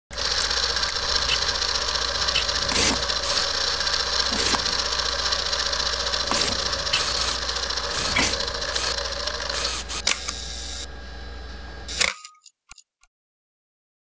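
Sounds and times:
mechanical running clatter: 0.1 - 10.9
low hum: 0.1 - 12.0.

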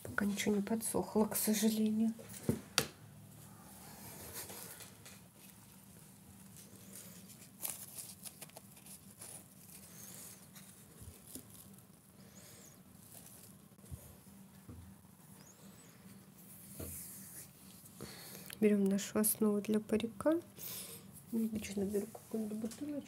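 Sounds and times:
hands rustling craft materials: 3.9 - 14.7.

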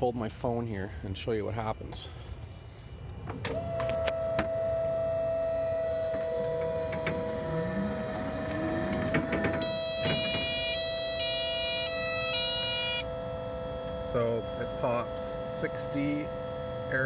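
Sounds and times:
electric truck whine: 2.3 - 17.0
clicks and clunks of stopping: 6.1 - 10.8.

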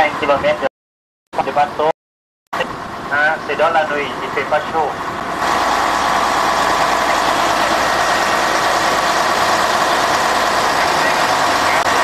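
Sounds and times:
boat engine droning: 2.6 - 12.0.

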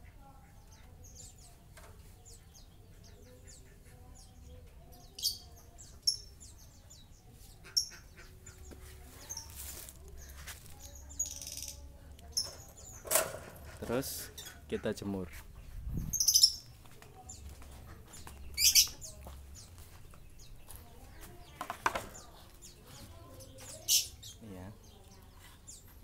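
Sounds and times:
bird chirping: 0.3 - 26.0
rustling movement: 8.6 - 11.2.

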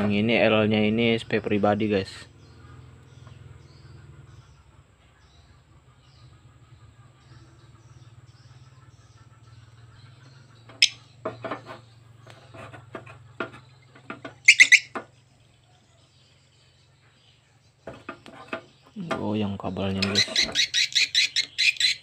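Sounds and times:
recorded bird chirps and clicks: 9.1 - 15.8, 17.6 - 22.0.

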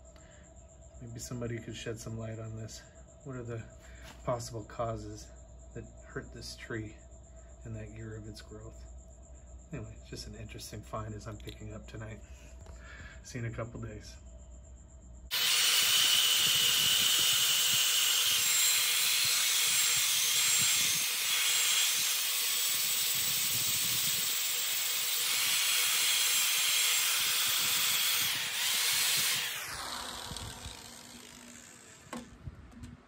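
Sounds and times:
sanding disc hissing on wood: 15.3 - 32.3
motor winding down: 15.3 - 32.5.

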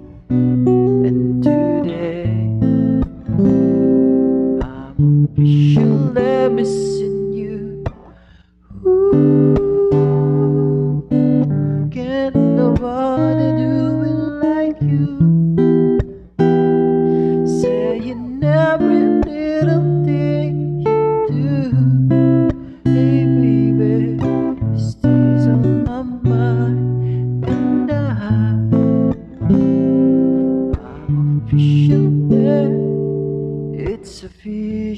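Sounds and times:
man singing: 0.0 - 3.1, 4.5 - 15.9, 17.0 - 29.9, 30.7 - 34.9
acoustic guitar strumming: 0.0 - 34.9.

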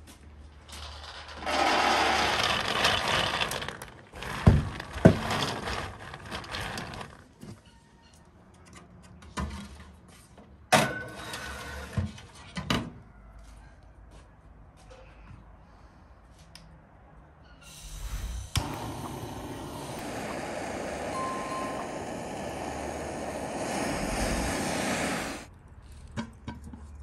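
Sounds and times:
nuts rattling into metal tray: 0.8 - 7.1
nuts rustling: 1.4 - 7.1.

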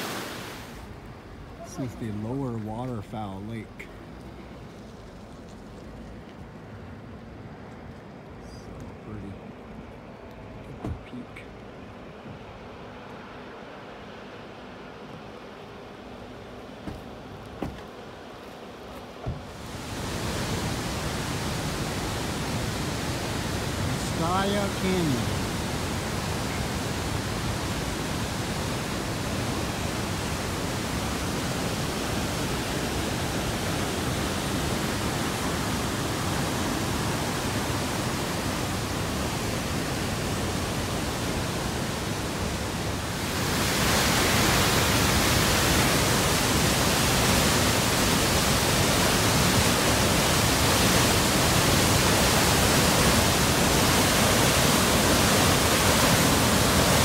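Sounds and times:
river rushing through gorge: 19.4 - 57.0.

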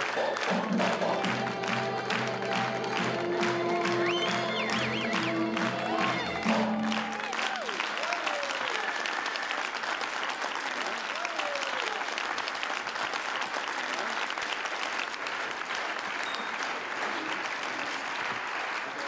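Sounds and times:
audience clapping: 0.0 - 19.0.

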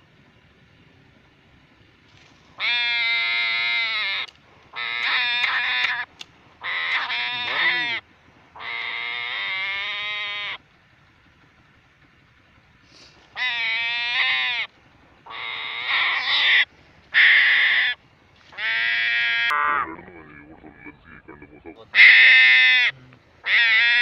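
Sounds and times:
animal crying loudly: 2.6 - 8.0, 8.6 - 10.6, 13.3 - 24.0.

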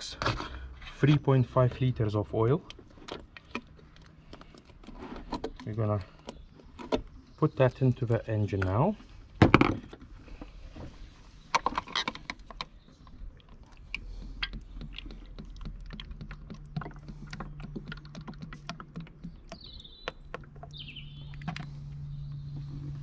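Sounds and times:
bird chirping: 11.0 - 23.0
oil glugging through funnel: 11.6 - 23.0.

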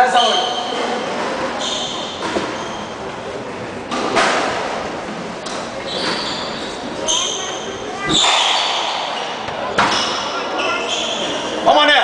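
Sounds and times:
shoes squeaking on wooden floor: 5.7 - 11.5
squash ball hit with racket: 8.1 - 10.2.

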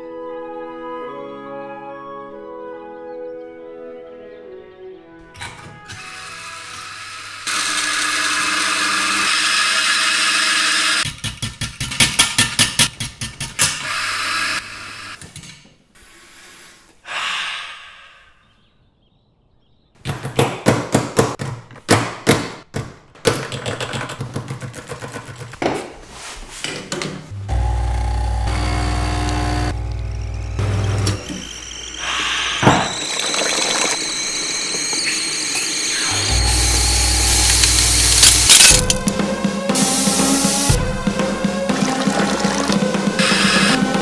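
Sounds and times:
coffee grinder running: 6.6 - 11.0, 27.4 - 39.2
person sniffing: 16.0 - 18.4
fast clicks: 37.2 - 39.2.

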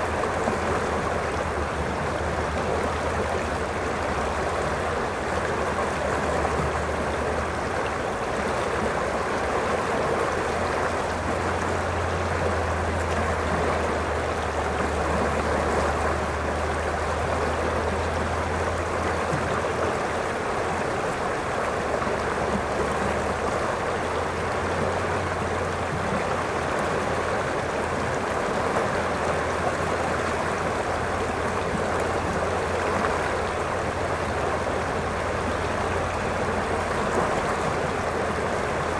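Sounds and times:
river rushing over rocks: 0.0 - 38.9.

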